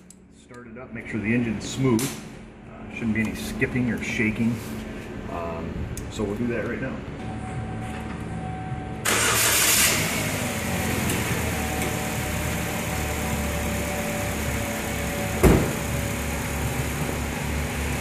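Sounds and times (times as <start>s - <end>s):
car engine starting and idling: 5.6s - 18.0s
car door slamming: 15.4s - 15.9s.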